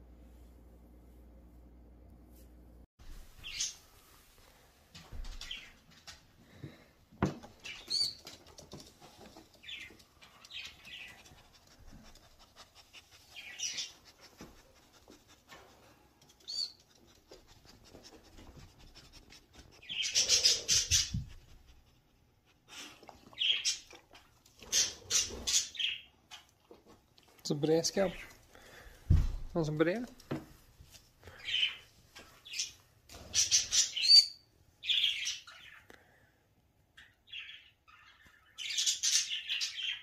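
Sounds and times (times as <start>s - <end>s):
parrot chirping: 19.8s - 21.3s, 32.4s - 35.8s.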